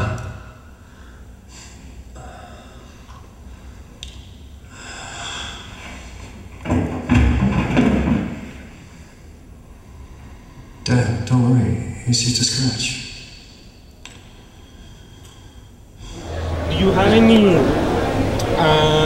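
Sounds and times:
faint noisy sounds: 0:00.0 - 0:19.0
deep noisy burst: 0:16.0 - 0:19.0
hissing swell: 0:16.0 - 0:19.0.

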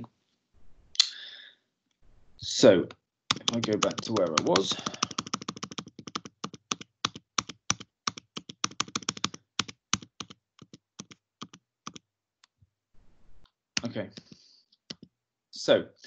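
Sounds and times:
keyboard keys tapped rapidly: 0:03.3 - 0:12.0.

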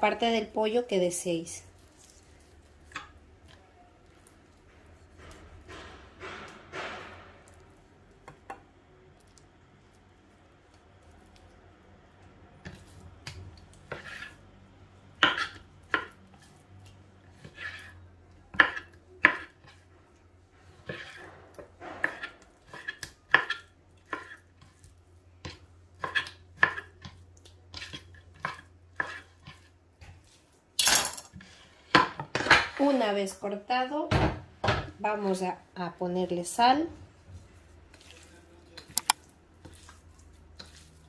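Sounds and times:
knife chopping on board: 0:18.5 - 0:19.8, 0:22.0 - 0:24.8, 0:25.4 - 0:27.2.

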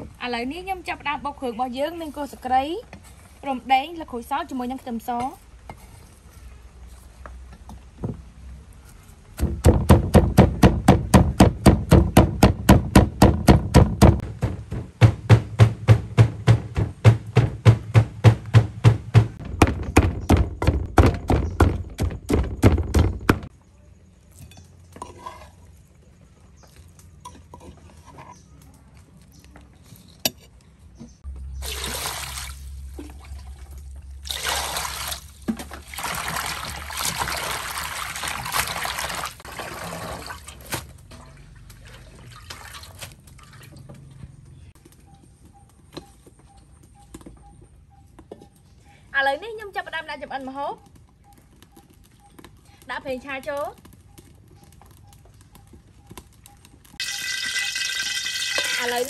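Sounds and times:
pestle pounding in wooden mortar: 0:09.4 - 0:23.5
running water splashing over greens: 0:31.6 - 0:40.8, 0:57.0 - 0:59.0.

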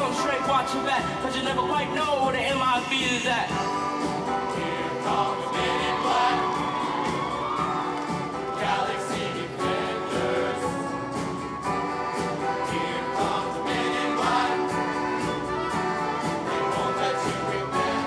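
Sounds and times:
live band with steady beat: 0:00.0 - 0:18.0
male choir singing: 0:04.2 - 0:07.4, 0:08.4 - 0:11.2, 0:12.4 - 0:18.0.

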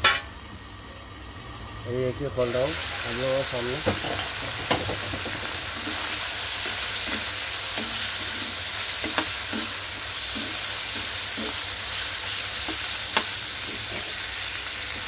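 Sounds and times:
chicken sizzling in oil: 0:00.0 - 0:15.0
utensil knocking on pan: 0:03.8 - 0:06.0
utensil scraping a pan: 0:03.9 - 0:12.0, 0:12.6 - 0:14.2.

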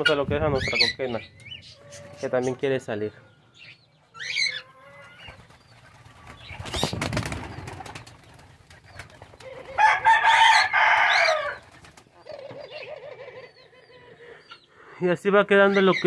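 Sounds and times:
harsh bird call: 0:00.0 - 0:07.9
dove wings flapping: 0:05.3 - 0:10.2, 0:11.6 - 0:12.1.

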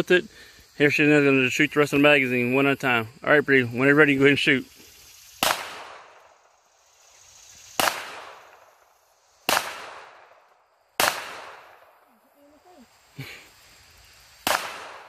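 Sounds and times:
pistol shots: 0:05.4 - 0:06.3, 0:07.8 - 0:08.7, 0:09.5 - 0:10.4, 0:11.0 - 0:12.0, 0:14.4 - 0:15.0.

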